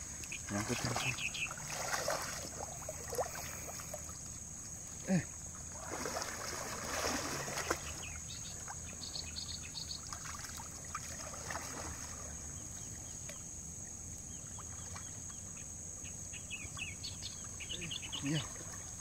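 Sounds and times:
water splashing and dripping: 0:00.0 - 0:08.9, 0:10.0 - 0:12.5
high insect drone: 0:00.0 - 0:19.0.

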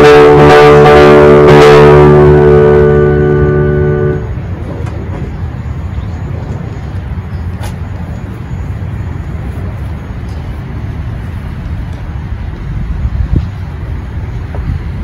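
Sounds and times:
low rumbling outdoor noise: 0:00.0 - 0:15.0.

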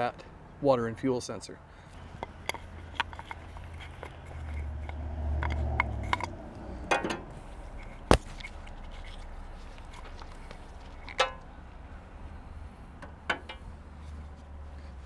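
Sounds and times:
hands clicking and scraping fittings: 0:01.9 - 0:11.5, 0:13.0 - 0:13.7.

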